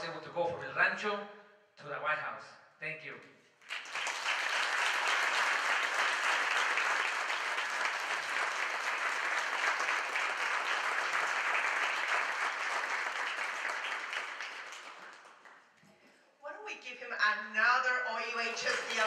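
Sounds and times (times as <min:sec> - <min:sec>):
audience applauding: 0:03.6 - 0:15.7, 0:18.5 - 0:19.0.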